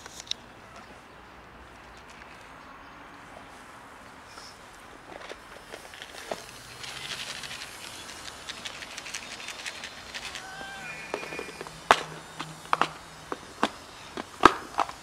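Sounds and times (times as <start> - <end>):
dry cat food rattling in container: 5.6 - 11.8
high cat mew: 10.3 - 11.5.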